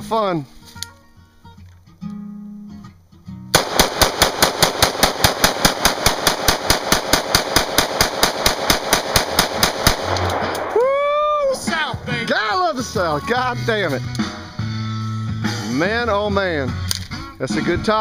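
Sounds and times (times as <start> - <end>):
rapid rifle shots: 3.6 - 10.8.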